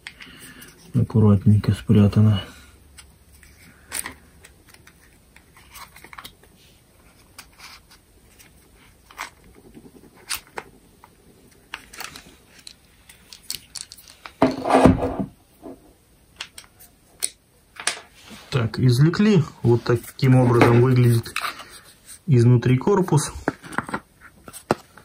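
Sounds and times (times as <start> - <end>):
plastic housing clicks and rattles: 11.7 - 14.4.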